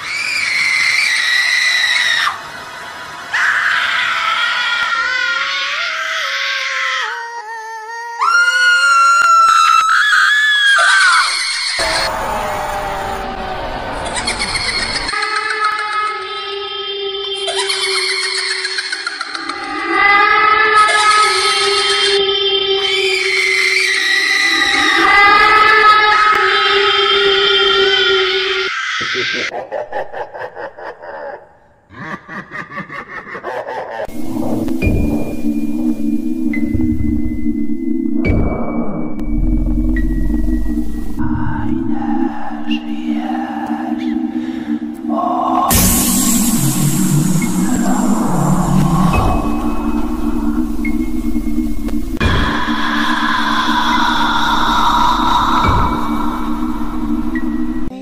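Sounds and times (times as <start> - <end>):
shrill screaming voice: 3.3 - 15.2
high wavering scream: 8.2 - 15.3, 34.1 - 57.9
steady electronic drone: 11.8 - 15.2, 34.1 - 57.9
rapid rhythmic ghostly laughter: 11.8 - 16.2, 17.4 - 20.0, 28.7 - 34.4, 41.6 - 51.3.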